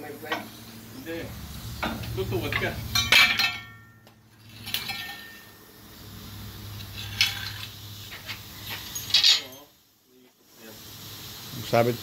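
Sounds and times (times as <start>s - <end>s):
steady low hum: 0.0s - 9.2s
metal clanks and clinks: 1.8s - 5.6s, 6.9s - 9.7s.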